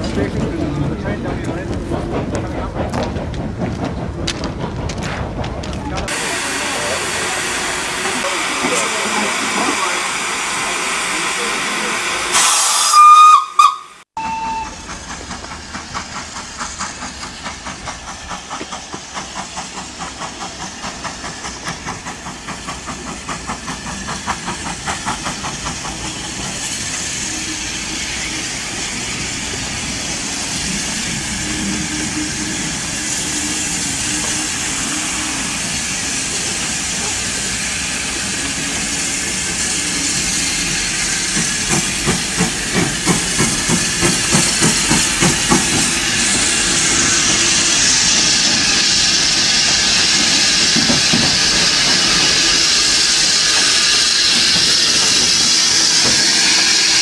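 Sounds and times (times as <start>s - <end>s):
steam hissing: 6.0s - 57.0s
steam locomotive whistle: 12.2s - 14.9s
steam exhaust chuffs: 14.2s - 57.0s.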